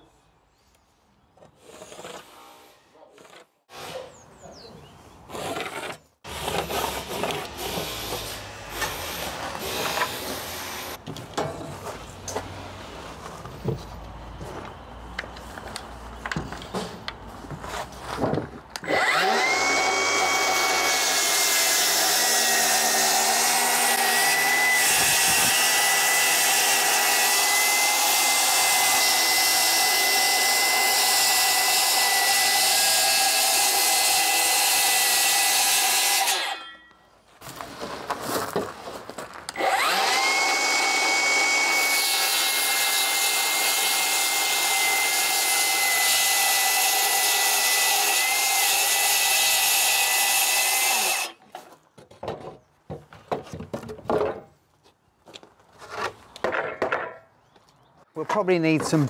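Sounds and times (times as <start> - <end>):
circular saw cutting plywood: 5.4 - 11.0, 18.8 - 36.7, 39.5 - 51.4.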